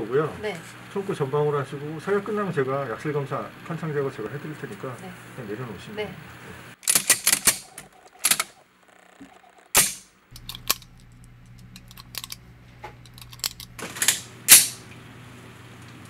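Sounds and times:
steady low hum: 0.0s - 16.0s
metallic clicks of pistol handling: 10.3s - 12.4s, 13.0s - 14.8s.

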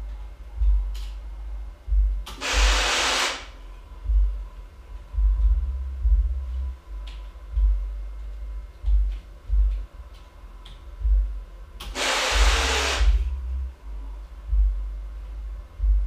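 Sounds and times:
loud rushing noise: 2.4s - 3.6s, 12.0s - 13.3s
stepper motors humming: 11.0s - 13.8s.

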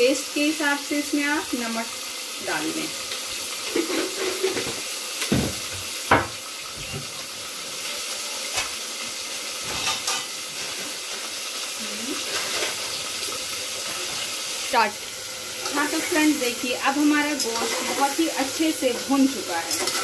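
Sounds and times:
meat and onions sizzling in oil: 0.0s - 20.0s
ladle knocking and scraping pot: 3.6s - 4.8s, 17.4s - 18.1s, 19.7s - 20.0s.

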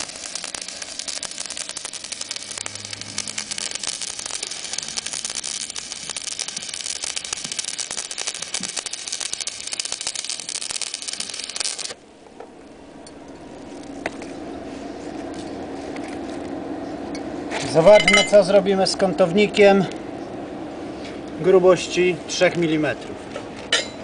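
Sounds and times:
welding arc crackling: 0.0s - 16.5s
welder hum: 0.0s - 19.9s.

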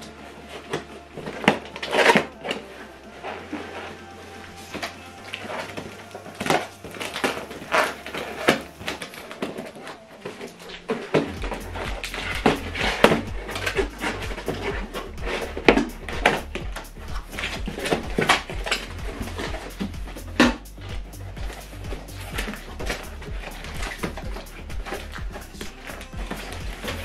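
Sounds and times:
background music: 0.0s - 27.0s
scrapes and rustles of packing: 0.0s - 27.0s.

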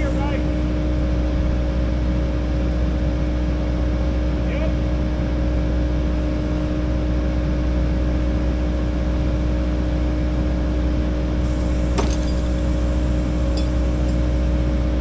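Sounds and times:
excavator diesel engine running: 0.0s - 15.0s
metal clink: 11.9s - 12.8s, 13.5s - 14.3s.

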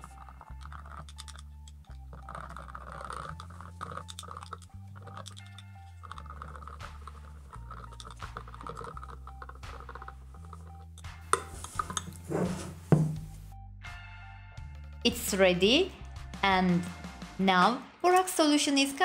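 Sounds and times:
spoon stirring in a glass mug: 0.0s - 13.1s.

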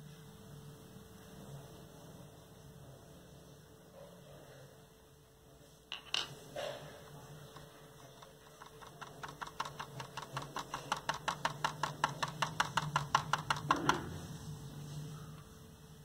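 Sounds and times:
cotton bud tapping paper: 7.0s - 14.2s.

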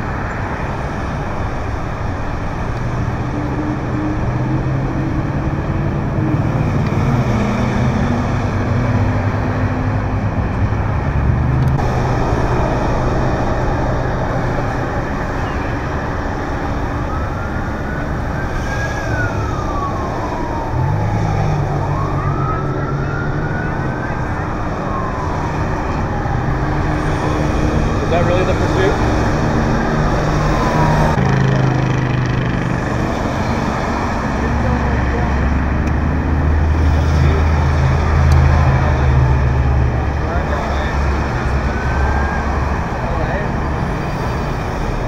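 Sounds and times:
cars passing with tyre roar: 0.0s - 45.0s
siren wailing: 11.8s - 44.0s.

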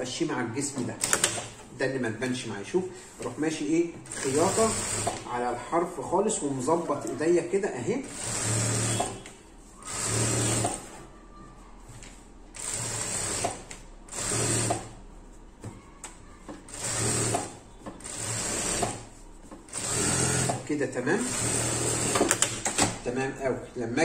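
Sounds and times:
sewing machine stitching: 4.1s - 5.3s, 8.0s - 9.2s, 9.9s - 11.0s, 12.6s - 14.9s, 16.7s - 19.1s, 19.7s - 23.0s.

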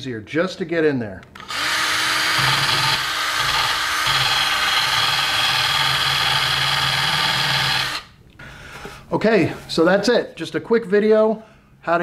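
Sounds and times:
drill sanding wood: 1.4s - 8.1s.

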